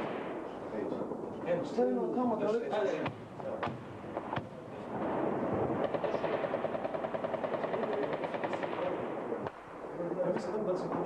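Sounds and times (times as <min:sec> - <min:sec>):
automatic gunfire: 0:05.7 - 0:09.0.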